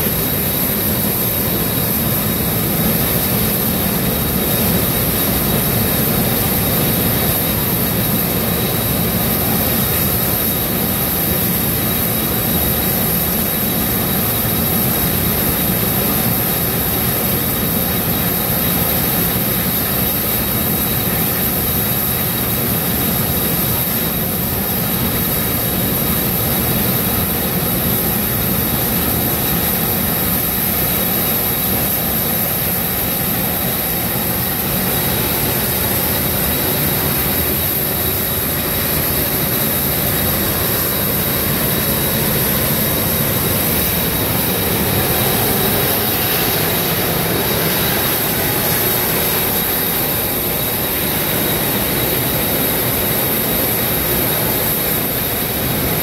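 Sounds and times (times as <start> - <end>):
high-pressure steam venting: 0.0 - 56.0.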